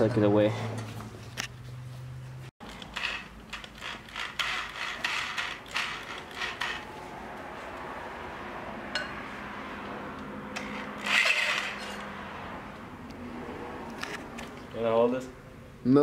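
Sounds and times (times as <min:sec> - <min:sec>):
saw mechanical clicks and rattles: 0:02.6 - 0:06.9.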